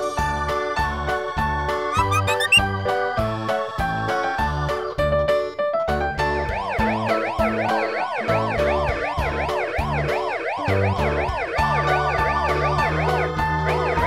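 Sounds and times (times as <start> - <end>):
ambulance siren wailing: 1.9 - 2.6, 6.5 - 14.0.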